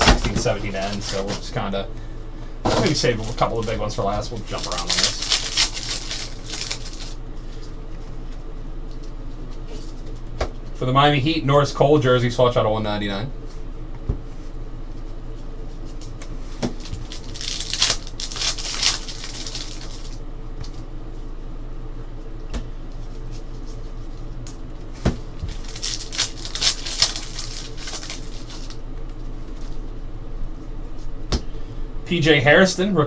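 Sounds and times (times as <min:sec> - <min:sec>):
steady low hum: 0:00.0 - 0:33.0
cards swishing and rustling: 0:04.5 - 0:07.6.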